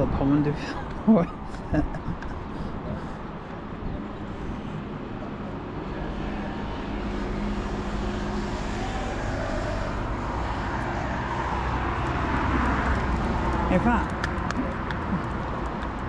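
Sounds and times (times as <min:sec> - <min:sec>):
vehicle passing close by: 0:04.2 - 0:16.0.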